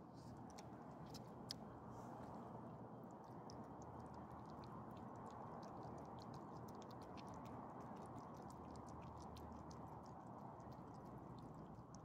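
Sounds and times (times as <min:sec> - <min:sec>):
dogs licking and chewing: 0:03.2 - 0:12.0.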